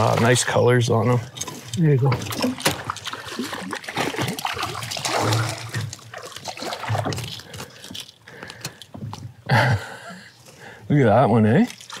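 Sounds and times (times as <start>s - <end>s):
fish splashing in water: 2.3s - 8.0s.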